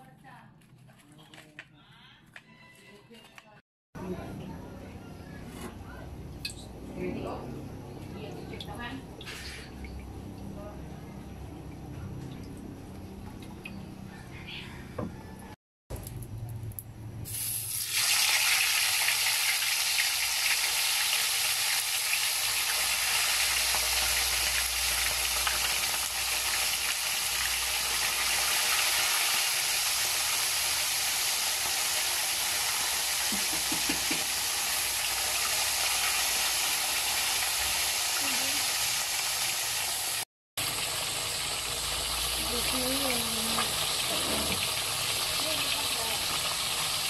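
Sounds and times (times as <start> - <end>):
fish sizzling in hot oil: 17.2 - 47.0.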